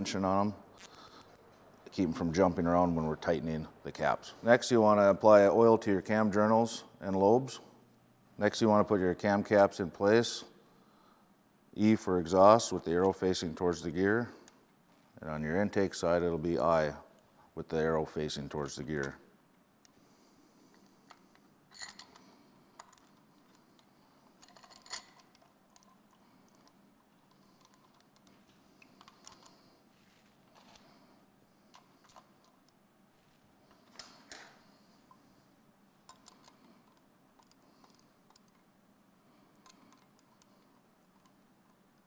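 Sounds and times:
metallic clinks and taps: 20.7s - 29.6s, 36.0s - 38.7s.

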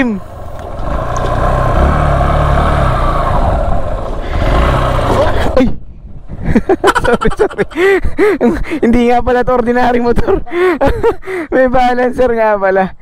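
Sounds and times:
motorcycle engine revving: 0.0s - 5.8s.

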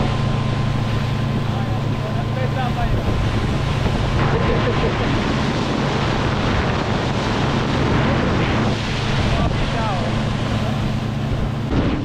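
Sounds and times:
hiss of churning wake: 0.0s - 12.0s
motorboat engine hum: 0.0s - 12.0s
wind on microphone: 0.0s - 12.0s.

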